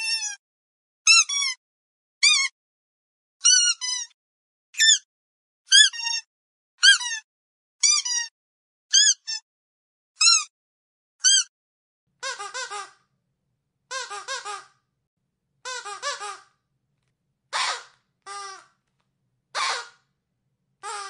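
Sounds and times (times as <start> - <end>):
squeaky dog toy squeaking: 0.0 - 0.4, 1.1 - 1.6, 2.2 - 2.6, 3.4 - 4.2, 4.8 - 5.1, 5.7 - 8.3, 8.9 - 9.4, 10.2 - 10.5, 11.2 - 11.5, 12.2 - 13.0, 13.9 - 14.7, 15.6 - 16.5, 17.5 - 18.7.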